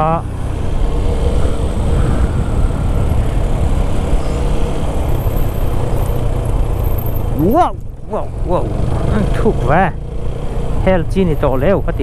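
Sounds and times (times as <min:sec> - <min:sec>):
motorcycle engine running: 0:00.0 - 0:11.8
wind rumble over microphone: 0:00.2 - 0:09.1.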